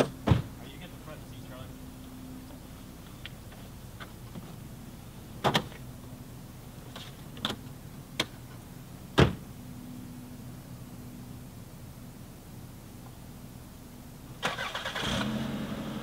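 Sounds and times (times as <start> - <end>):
car door thudding shut: 0.0 - 0.6, 9.2 - 9.4.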